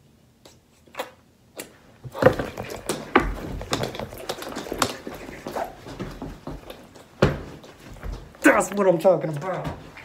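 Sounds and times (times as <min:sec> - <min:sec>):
thuds and rustling: 0:02.0 - 0:08.3.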